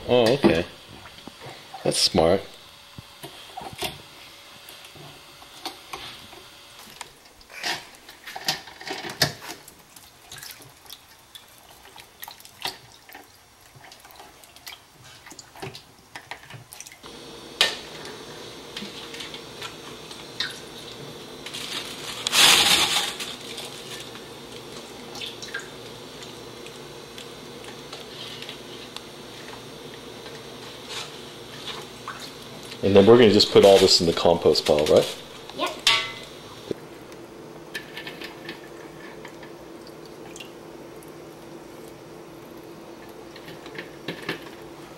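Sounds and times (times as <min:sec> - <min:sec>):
water splashing in a bowl: 0:09.7 - 0:15.9
steady low hum: 0:17.0 - 0:44.9.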